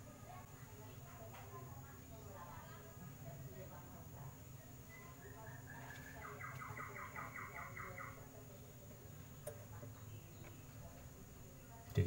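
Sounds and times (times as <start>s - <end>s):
faint rapid chirping: 1.8s - 11.8s.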